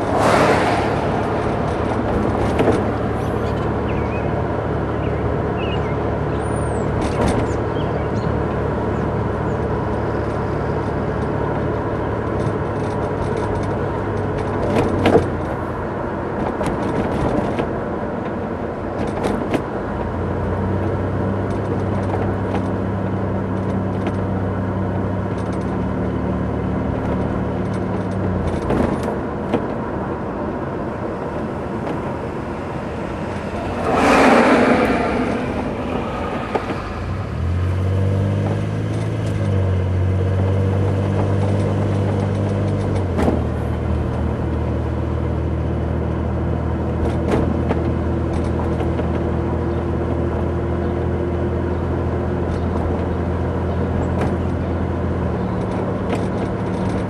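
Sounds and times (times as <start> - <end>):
rushing swell: 0.0 - 3.4, 30.9 - 38.4
knocks and rattles over bumps: 0.0 - 57.0
road noise: 0.0 - 57.0
vehicle engine hum: 0.0 - 57.0.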